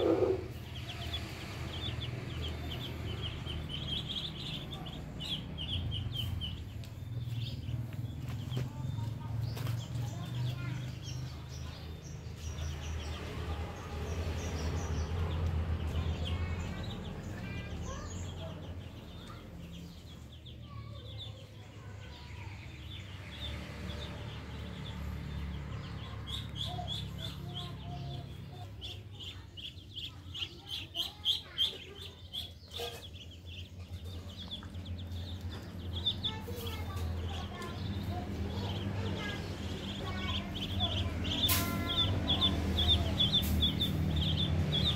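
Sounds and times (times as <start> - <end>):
ducklings peeping: 0.0 - 44.9.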